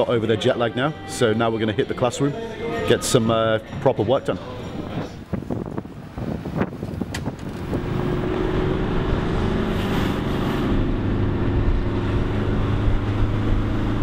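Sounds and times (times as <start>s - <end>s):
road noise: 0.0s - 14.0s
minibus engine running: 4.5s - 14.0s.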